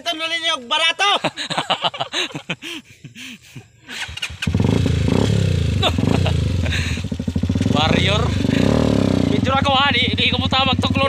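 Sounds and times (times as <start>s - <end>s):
motorcycle engine running: 4.1s - 11.0s.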